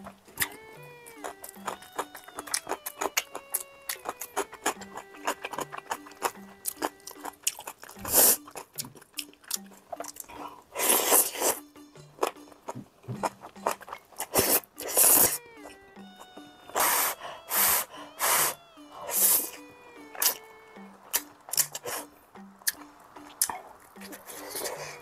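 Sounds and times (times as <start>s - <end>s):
wet chewing clicks: 0.0s - 25.0s
noodles slurped: 4.8s - 9.2s, 10.1s - 11.6s, 14.2s - 15.4s.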